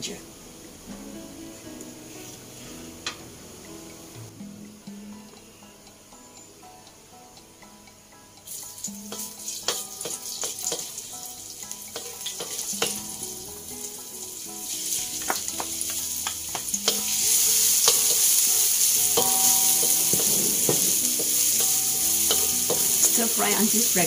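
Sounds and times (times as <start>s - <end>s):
garlic sizzling in hot oil: 8.4s - 24.0s
spatula scraping a metal wok: 9.1s - 11.0s, 11.9s - 13.2s, 14.8s - 23.8s.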